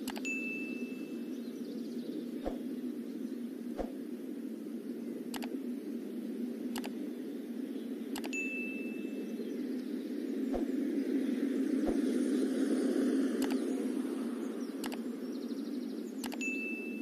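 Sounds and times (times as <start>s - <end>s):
sharp mouse clicks: 0.0s - 0.3s, 3.8s - 4.0s, 5.3s - 5.6s, 6.7s - 7.0s, 8.1s - 8.4s, 13.4s - 13.6s, 14.8s - 15.0s, 16.2s - 16.4s
low rushing noise: 10.0s - 15.0s.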